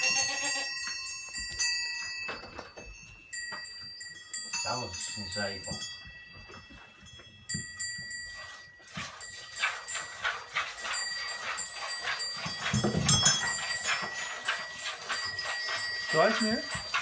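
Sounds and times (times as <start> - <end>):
goat bleating: 0.0 - 0.8
high ringing like small bells: 0.0 - 10.2, 10.8 - 17.0.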